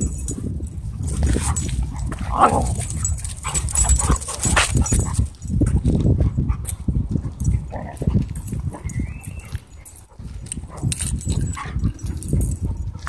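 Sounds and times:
dogs yipping and whimpering: 1.1s - 5.3s, 8.4s - 13.0s.

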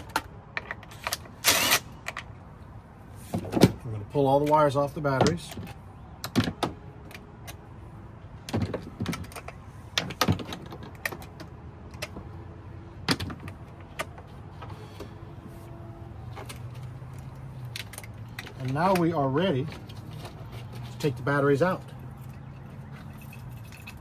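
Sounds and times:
metallic clicks and knocks of cables: 8.4s - 12.4s, 16.3s - 24.0s.

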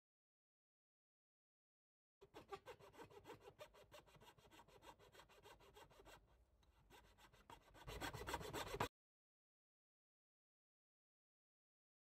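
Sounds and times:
saw rasping through wood: 2.2s - 8.9s.

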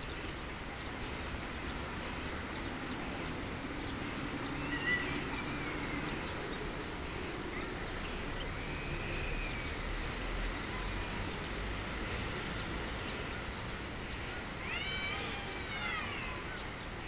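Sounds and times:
birds calling: 0.0s - 10.2s
outdoor background noise: 0.0s - 17.0s.

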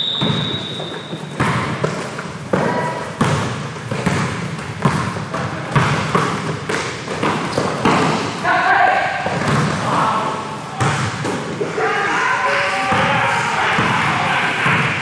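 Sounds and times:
referee's whistle: 0.0s - 1.4s
basketball bouncing on hardwood: 0.0s - 8.2s, 9.2s - 9.8s
gym noise: 0.0s - 15.0s.

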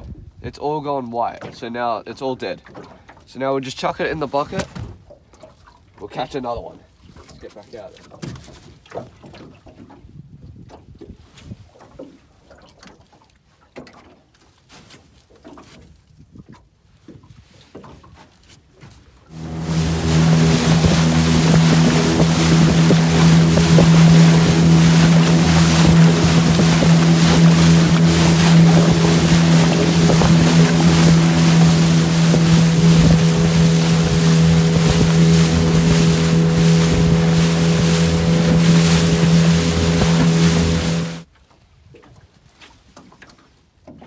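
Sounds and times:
wind buffeting microphone: 19.3s - 41.2s
outboard motor running: 19.3s - 41.3s
water splashing off hull: 19.3s - 41.3s.

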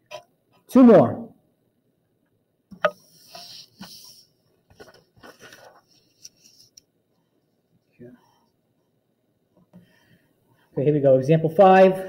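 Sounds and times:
paper rustling and sliding: 3.0s - 6.8s.

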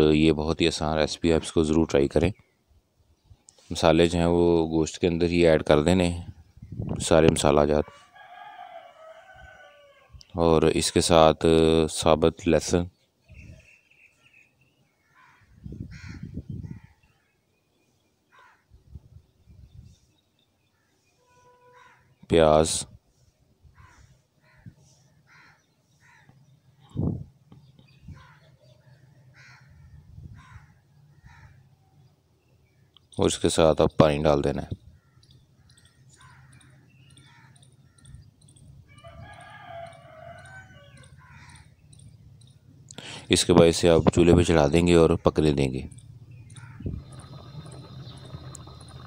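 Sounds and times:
birds chirping: 0.0s - 22.9s, 23.8s - 49.0s
bird calling: 34.7s - 43.3s, 43.9s - 49.0s
insect chirping: 45.9s - 49.0s.

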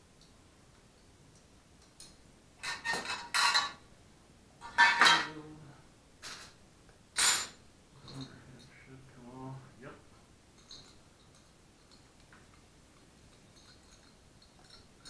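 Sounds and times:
metal tools clattering on workbench: 2.6s - 3.8s, 4.6s - 5.4s, 7.2s - 8.3s.

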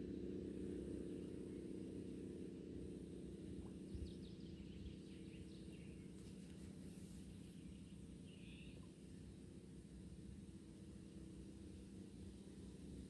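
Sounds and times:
faint bird chirps: 3.6s - 9.4s.

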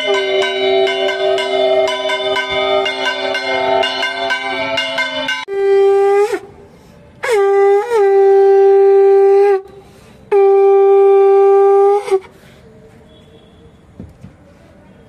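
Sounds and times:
conch shell blasts: 0.0s - 6.5s, 10.3s - 12.2s.

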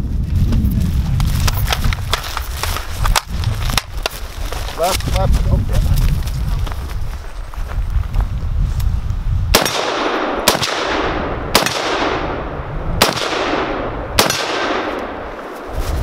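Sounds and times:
rifle shots with echo: 9.5s - 15.6s.

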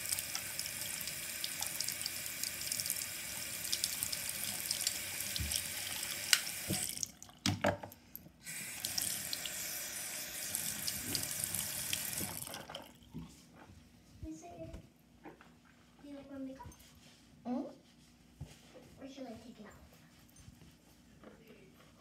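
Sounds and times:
tap water splashing into basin: 3.7s - 7.9s, 10.8s - 13.0s.

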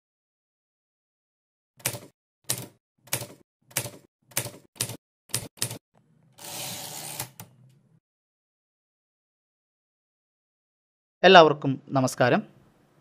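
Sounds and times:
typewriter carriage rushing: 6.4s - 7.4s.

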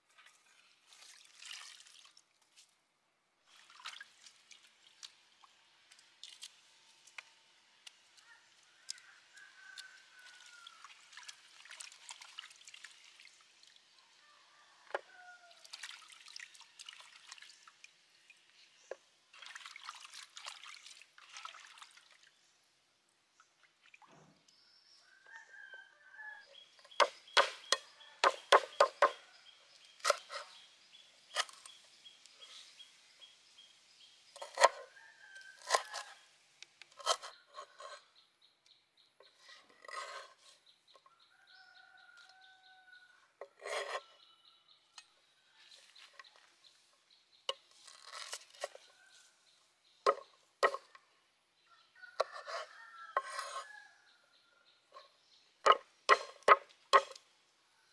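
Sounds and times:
birds calling: 26.4s - 33.6s
knife chopping on wooden board: 27.0s - 29.2s.

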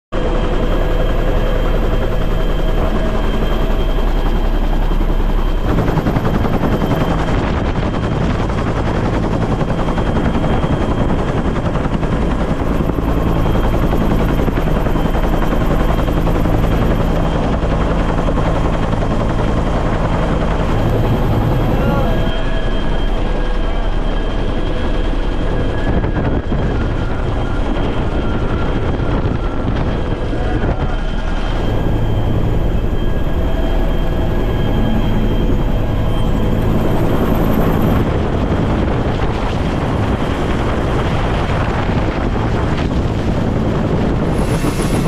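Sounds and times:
helicopter rotor and engine: 0.1s - 45.0s.

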